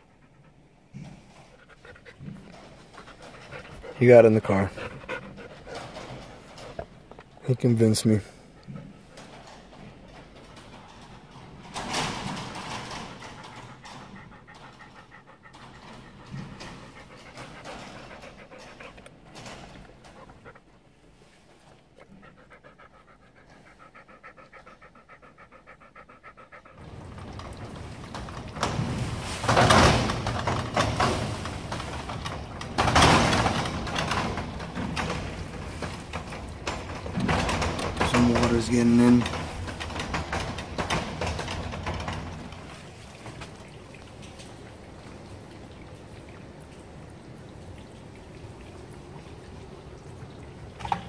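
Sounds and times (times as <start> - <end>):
dog panting rapidly: 0.0 - 7.3, 8.2 - 21.0, 21.6 - 42.7
metal roll-up door rattling: 2.6 - 8.2, 9.2 - 14.8, 26.8 - 45.2.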